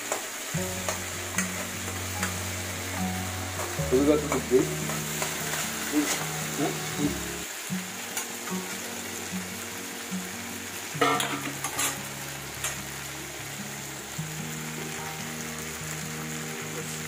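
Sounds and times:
vegetables sizzling in oil: 0.0s - 17.0s
spoon scraping and clinking on pan: 11.0s - 12.0s.

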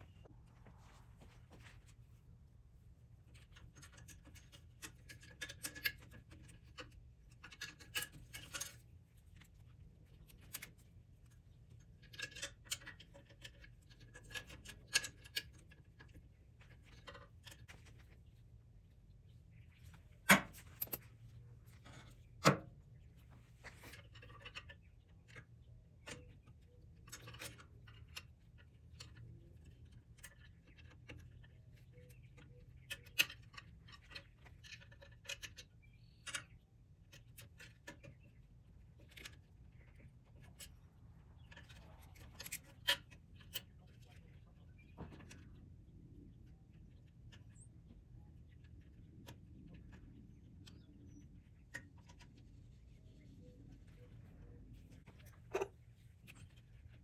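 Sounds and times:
metal parts clinking: 20.3s - 21.2s.

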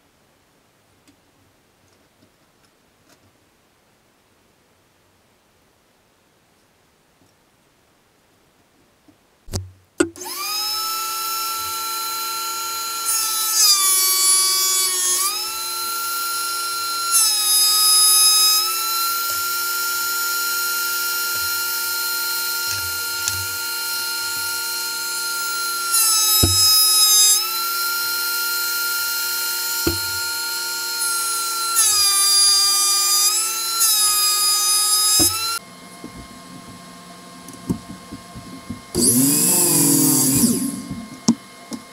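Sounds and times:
planer cutting board: 9.5s - 36.8s, 37.5s - 41.9s
thickness planer motor whine: 10.1s - 41.9s.

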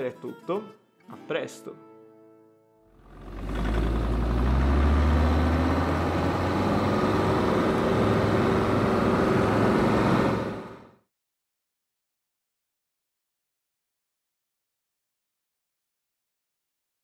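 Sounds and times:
car engine running: 3.0s - 11.0s.

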